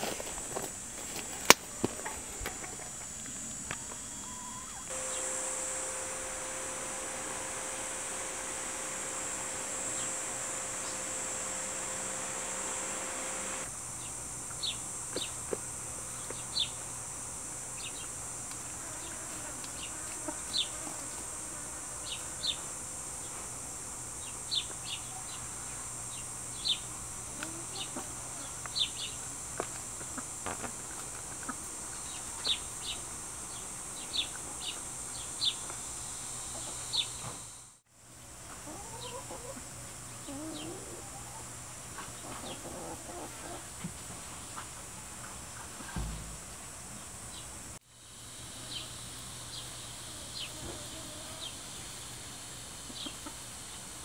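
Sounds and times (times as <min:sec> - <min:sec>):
high insect drone: 0:00.0 - 0:54.0
low chicken clucks: 0:38.5 - 0:41.5.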